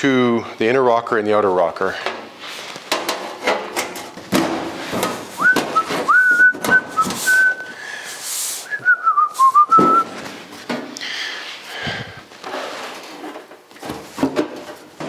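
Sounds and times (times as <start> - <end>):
man whistling: 5.4 - 7.8, 8.6 - 10.1.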